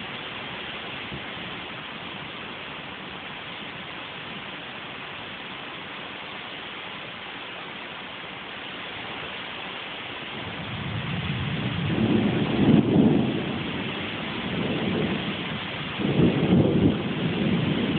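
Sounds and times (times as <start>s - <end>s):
rain hiss: 0.0s - 17.9s
thunder rumble: 10.4s - 17.9s.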